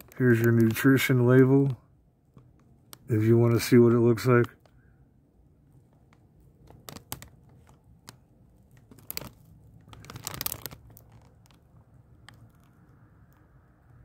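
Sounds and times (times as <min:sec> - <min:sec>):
snack bag crinkling: 0:00.0 - 0:01.1, 0:06.1 - 0:13.0.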